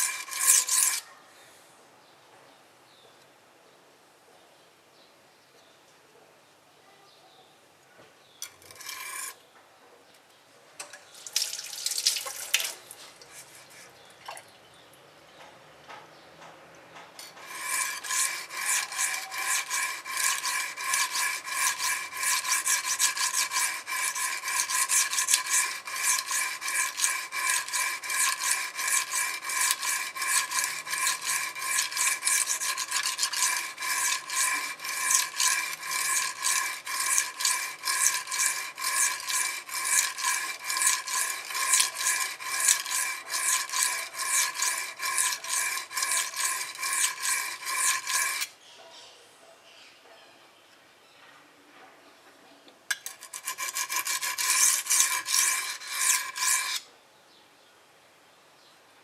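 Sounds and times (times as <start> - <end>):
knife scraping on whetstone: 0.0 - 1.1, 8.4 - 9.4, 12.6 - 14.0, 17.2 - 48.5, 52.9 - 56.8.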